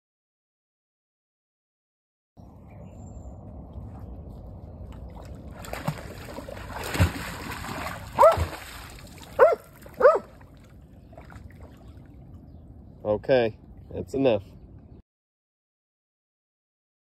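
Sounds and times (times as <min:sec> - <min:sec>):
dog splashing through water: 0:04.8 - 0:12.3
dog barking: 0:08.2 - 0:08.5, 0:09.4 - 0:10.4.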